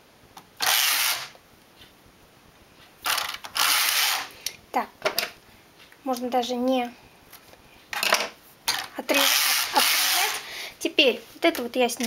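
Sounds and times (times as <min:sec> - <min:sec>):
knitting machine carriage sliding: 0:03.1 - 0:04.3, 0:09.1 - 0:10.4.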